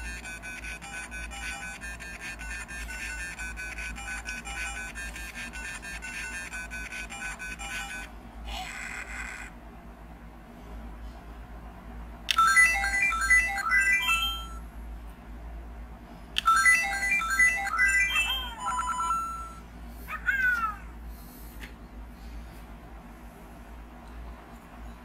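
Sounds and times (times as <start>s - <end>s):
electronic game jingles: 0.0s - 8.1s, 12.3s - 14.7s, 16.4s - 19.6s.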